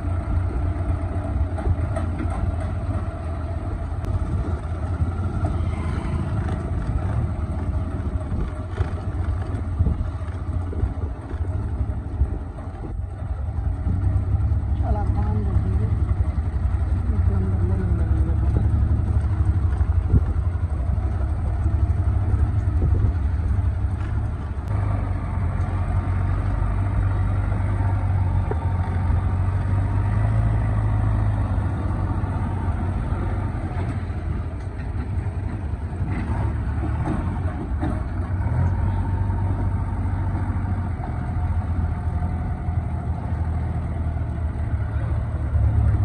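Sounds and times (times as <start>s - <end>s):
diesel engine drone: 0.0s - 46.0s.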